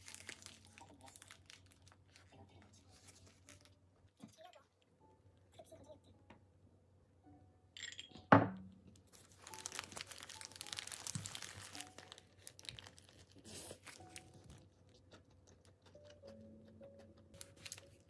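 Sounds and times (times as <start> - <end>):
paper wrapper crinkling: 0.0 - 3.8, 9.0 - 15.7, 17.4 - 18.0.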